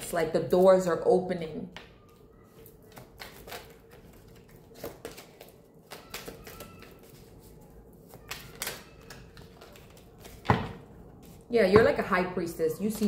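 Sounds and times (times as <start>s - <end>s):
cards being shuffled: 2.0s - 10.5s.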